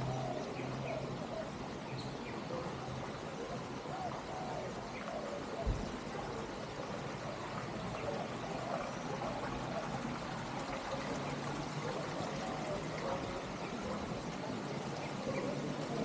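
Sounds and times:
fountain water splashing: 0.0s - 16.0s.

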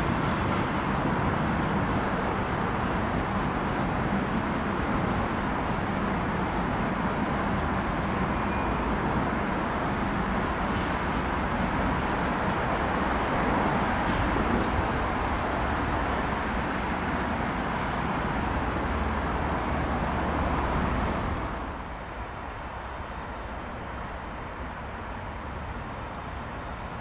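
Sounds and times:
freight train wagons rumbling: 0.0s - 27.0s.

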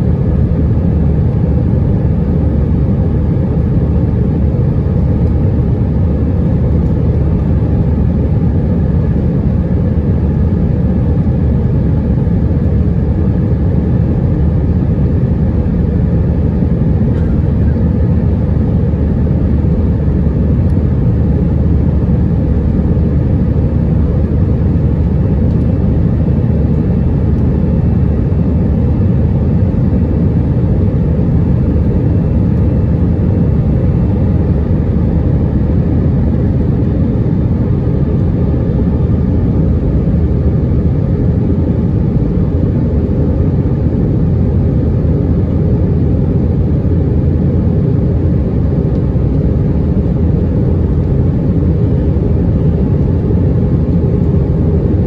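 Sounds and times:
airplane cabin engine and airflow noise: 0.0s - 55.0s
faint steady engine tones: 0.0s - 55.0s.

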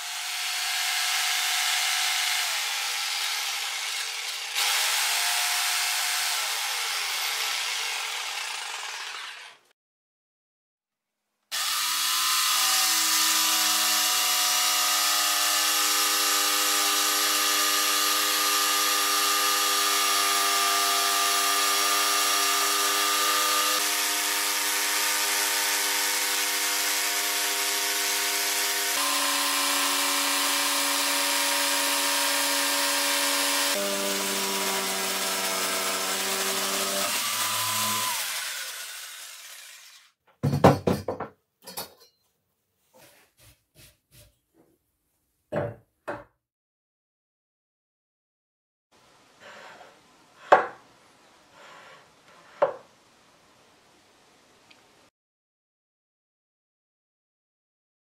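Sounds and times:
jigsaw sawing through wood: 0.0s - 9.7s, 11.5s - 40.2s.

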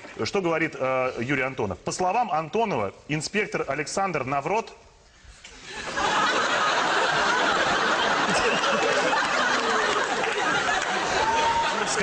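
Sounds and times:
studio audience laughing: 5.6s - 12.0s.

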